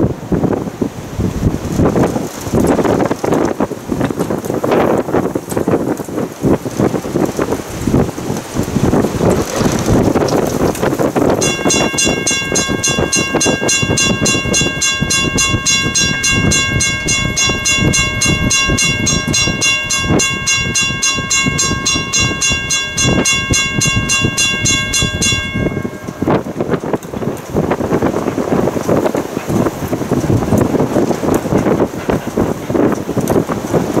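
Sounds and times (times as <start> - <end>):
wind noise on microphone: 0.0 - 34.0
steam locomotive chime whistle: 11.4 - 26.7.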